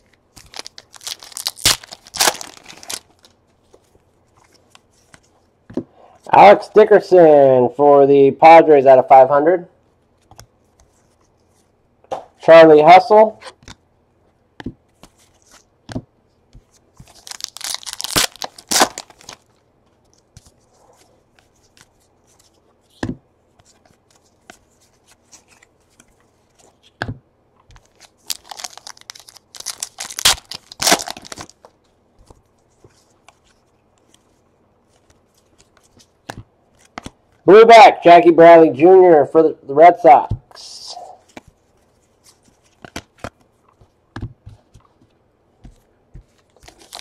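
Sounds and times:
wrapper tearing and crinkling: 0.4 - 3.3, 17.1 - 19.5, 27.8 - 31.7, 46.5 - 47.0.

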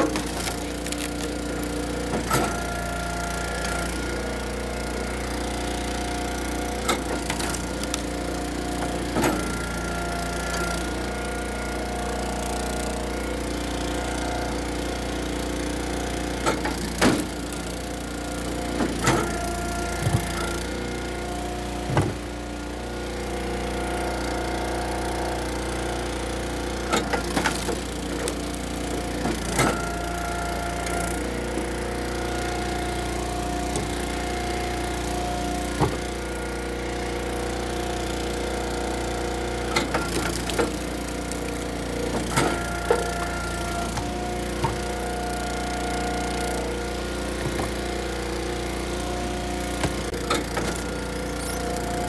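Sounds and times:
wood cracking and splitting: 0.0 - 2.6, 6.4 - 9.5, 27.2 - 29.8, 39.6 - 43.2, 43.8 - 45.1
hydraulic log splitter engine: 0.0 - 52.0.

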